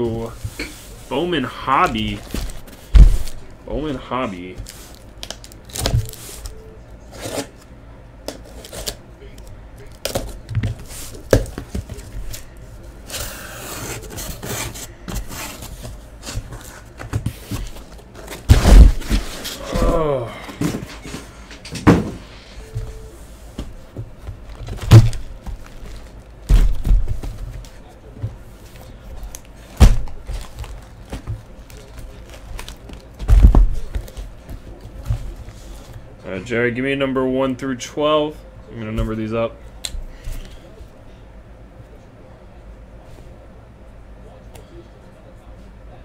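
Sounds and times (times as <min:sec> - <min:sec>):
cardboard boxes thudding on table: 0:02.3 - 0:03.4, 0:15.1 - 0:20.0, 0:21.8 - 0:22.2, 0:26.5 - 0:27.6, 0:29.8 - 0:31.4, 0:33.2 - 0:34.2
cardboard boxes scraping: 0:13.0 - 0:19.9.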